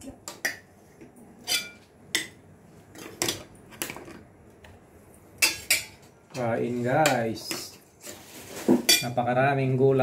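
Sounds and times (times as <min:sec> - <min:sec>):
metal spoons clinking on dishes: 0:01.4 - 0:02.4, 0:05.4 - 0:06.0, 0:08.9 - 0:09.2.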